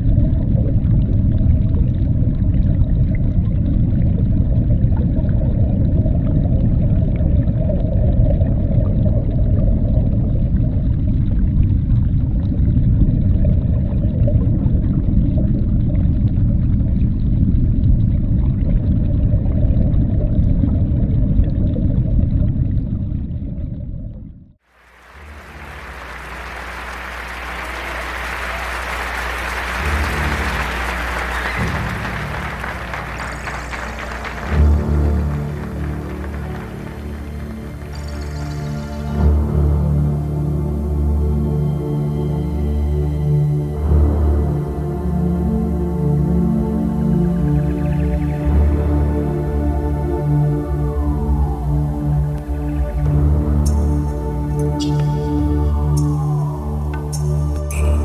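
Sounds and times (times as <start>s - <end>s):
deep rumbling drone: 0.0s - 58.0s
audience applause: 24.7s - 39.4s.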